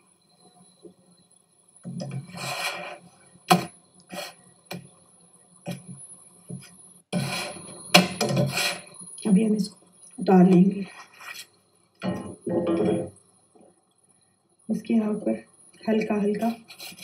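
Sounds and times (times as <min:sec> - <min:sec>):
faint background music: 0:00.0 - 0:17.0
spatula scraping frying pan: 0:07.2 - 0:09.0.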